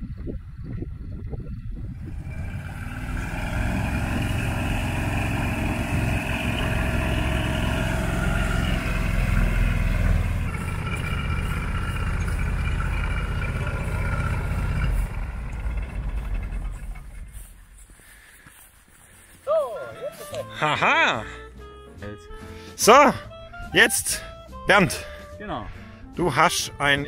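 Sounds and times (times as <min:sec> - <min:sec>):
ultralight aircraft engine and propeller: 0:00.1 - 0:18.1.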